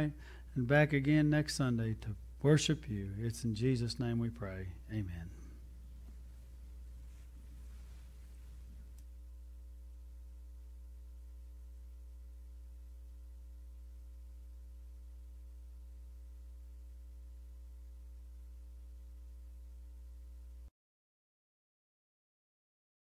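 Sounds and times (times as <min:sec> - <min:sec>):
electrical mains hum: 0:00.0 - 0:20.7.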